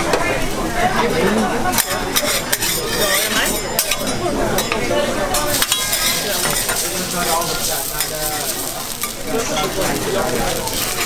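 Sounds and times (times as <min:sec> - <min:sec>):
steel spatulas scraping and clinking: 0:01.8 - 0:04.8, 0:05.4 - 0:10.0
fish sizzling on a griddle: 0:05.4 - 0:11.0.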